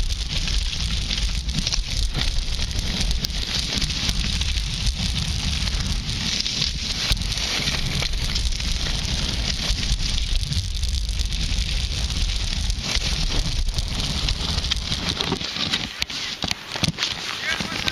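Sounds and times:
skis scraping over snow: 0.0 - 17.9
wind rumbling on microphone: 0.0 - 17.9.

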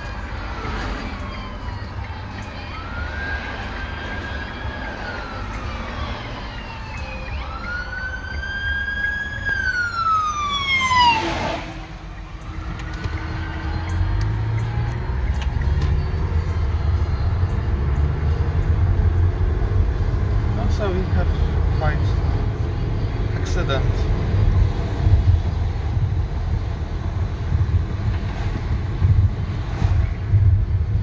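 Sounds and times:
fire truck siren wailing: 0.0 - 23.8
car road rumble: 0.0 - 31.0.

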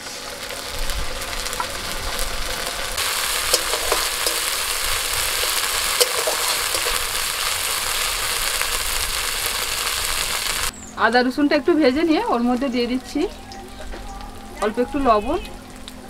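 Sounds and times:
onions sizzling in hot oil: 0.0 - 16.0
metal spatula scraping a pan: 3.3 - 8.8.

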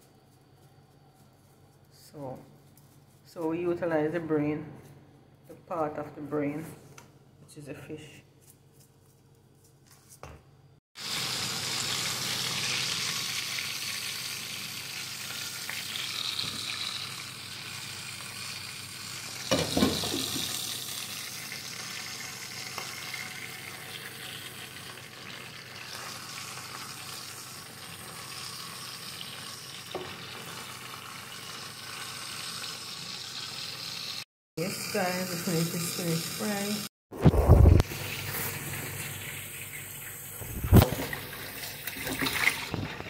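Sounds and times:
fish sizzling in hot oil: 11.0 - 36.8.

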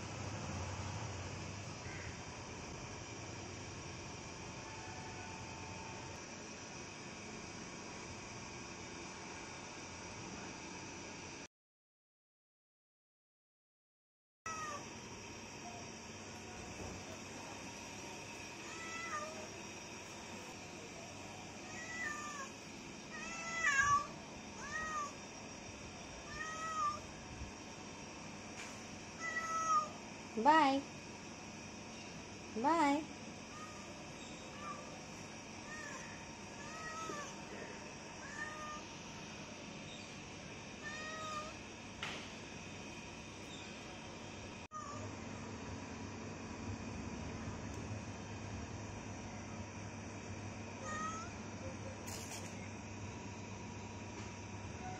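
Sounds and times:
cat meowing: 14.5 - 14.8, 18.6 - 19.5, 21.6 - 22.5, 23.1 - 25.2, 26.2 - 27.1, 29.2 - 29.9, 35.6 - 37.4, 38.2 - 38.8, 40.8 - 41.6, 50.8 - 51.3
brief rustle: 52.0 - 52.6.

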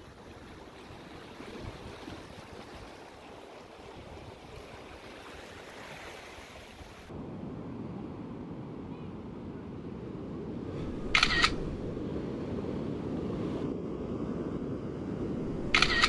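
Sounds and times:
camera shutter click: 11.0 - 11.8, 15.6 - 16.0.

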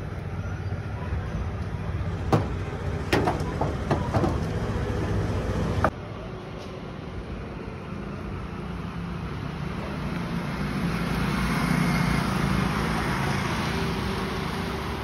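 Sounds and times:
low traffic rumble: 0.0 - 15.0
sheet metal clanking: 2.3 - 4.7.

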